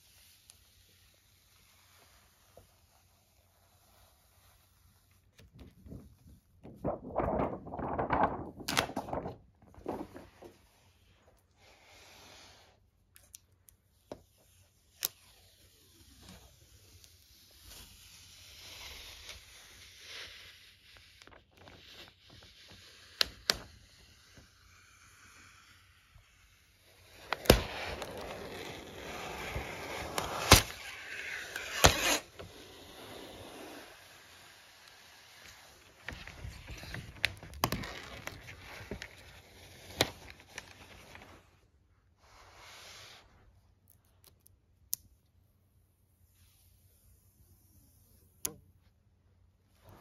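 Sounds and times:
paper wrap rustling and crinkling: 5.0 - 10.8, 35.1 - 41.7
sharp plastic crackles: 6.6 - 10.5, 27.1 - 32.5, 35.6 - 41.4.

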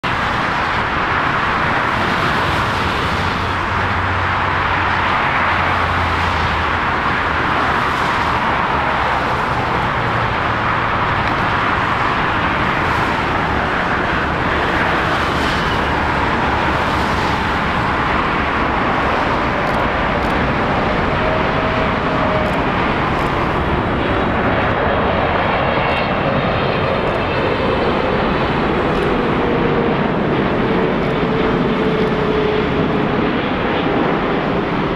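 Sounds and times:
jet engine rush with whine: 0.0 - 34.9.

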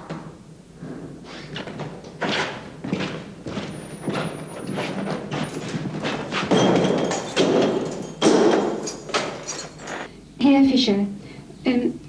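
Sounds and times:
irregular thumps and knocks: 1.6 - 10.1.

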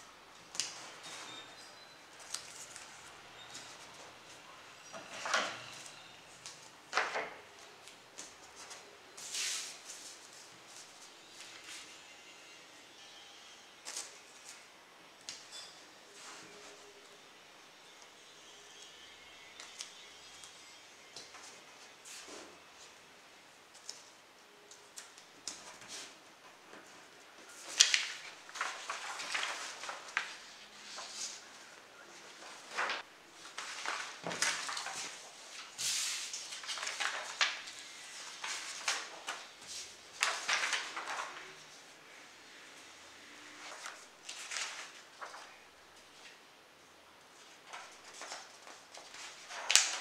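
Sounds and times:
paper rustling: 5.0 - 11.9, 24.7 - 41.8, 43.6 - 46.4, 47.4 - 50.0.

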